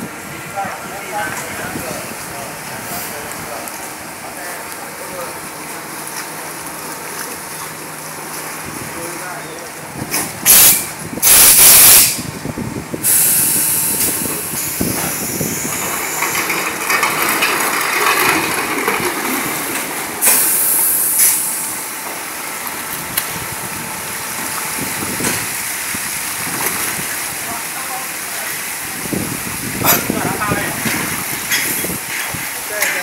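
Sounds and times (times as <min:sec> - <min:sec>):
water splashing and rushing: 0:00.0 - 0:11.3, 0:12.2 - 0:33.0
steady water hiss: 0:13.0 - 0:17.8, 0:19.4 - 0:33.0.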